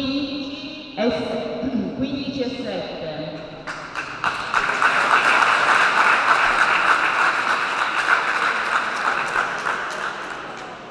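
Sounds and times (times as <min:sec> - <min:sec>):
audience applauding: 0:03.7 - 0:10.9.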